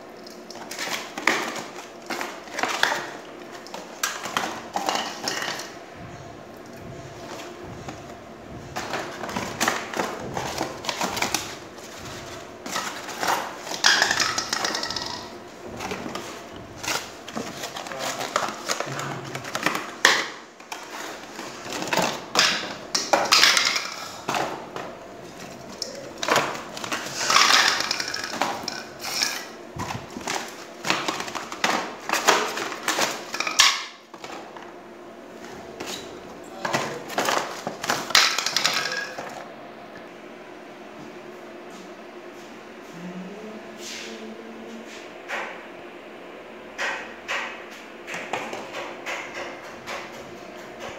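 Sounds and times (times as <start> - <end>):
cardboard boxes rustling and scraping: 6.9 - 13.7, 15.7 - 19.7.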